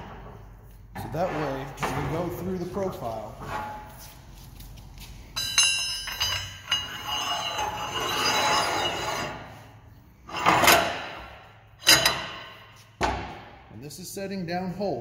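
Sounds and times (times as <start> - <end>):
metal clank: 5.4 - 9.4, 10.3 - 13.5
metal scraping on metal: 5.4 - 12.9.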